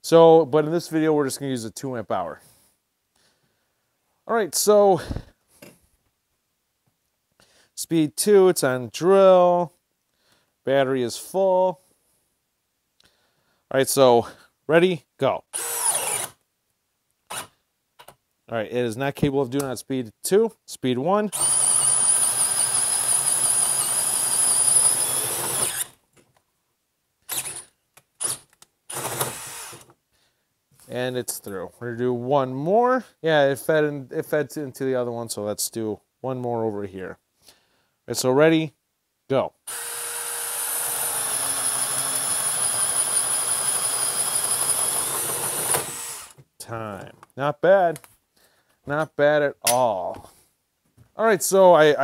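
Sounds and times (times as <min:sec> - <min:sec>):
drill motor whine: 0:15.6 - 0:16.3, 0:21.4 - 0:25.9, 0:28.9 - 0:29.8, 0:39.7 - 0:46.4.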